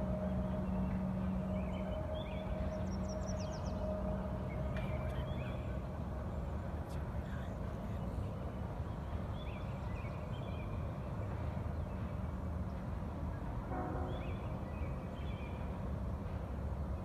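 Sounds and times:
birds chirping: 0.0s - 12.2s.

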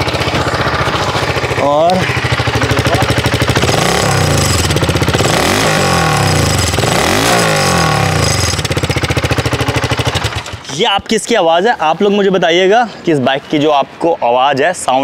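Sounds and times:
motorcycle engine idling and revving: 0.0s - 10.8s.

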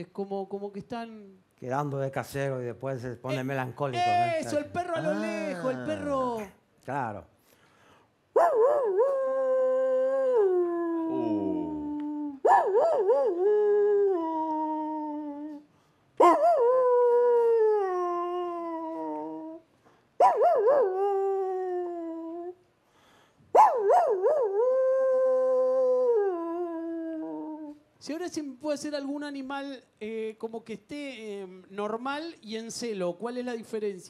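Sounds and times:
man imitating dog howling: 4.0s - 6.4s, 8.4s - 15.6s, 16.2s - 19.6s, 20.2s - 22.6s, 23.6s - 27.8s.

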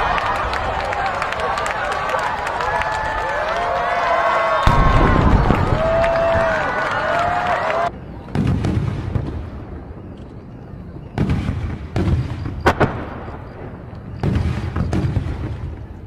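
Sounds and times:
firework shells booming: 4.6s - 6.7s, 8.3s - 10.1s, 11.2s - 16.0s
sharp firework crack: 4.7s - 6.6s, 11.2s - 15.7s.

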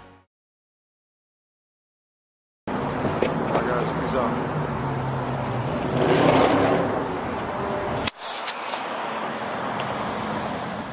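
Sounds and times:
road traffic: 0.0s - 0.3s, 2.7s - 10.9s.

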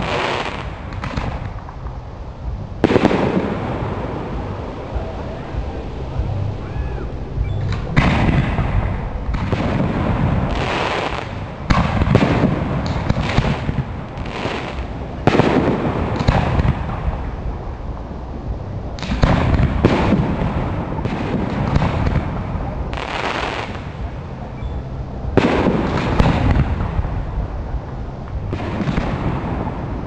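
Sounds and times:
rumbling firework tails: 0.0s - 30.0s
firework shells booming: 2.8s - 6.2s.

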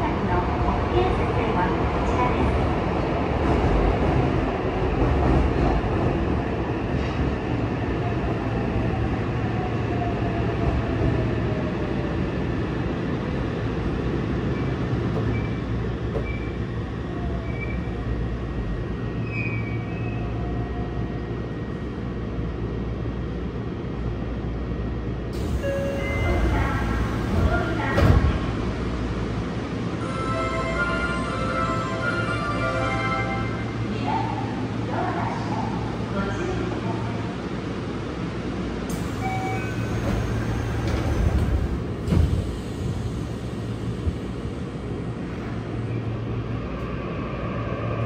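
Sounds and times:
wheels rumbling on rail: 33.7s - 48.0s.

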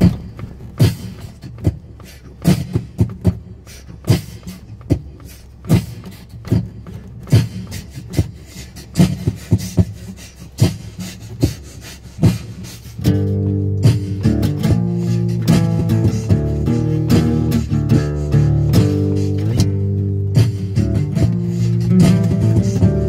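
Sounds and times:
beatboxing drum beat: 0.0s - 23.0s
low steady hum: 0.0s - 23.0s.

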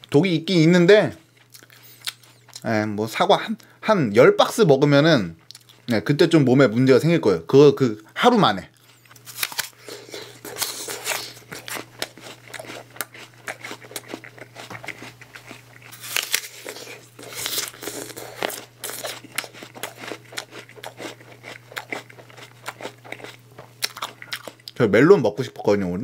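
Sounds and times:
crunchy apple chewing: 1.2s - 2.8s, 5.0s - 6.1s, 8.6s - 24.8s.

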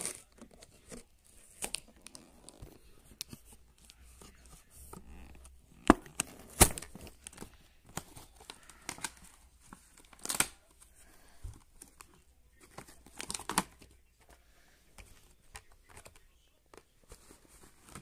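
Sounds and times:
packaging tearing and crinkling: 10.0s - 10.6s.

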